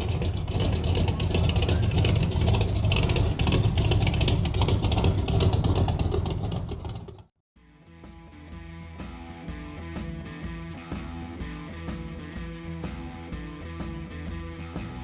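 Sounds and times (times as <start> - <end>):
car engine rough rumble: 0.0 - 7.4.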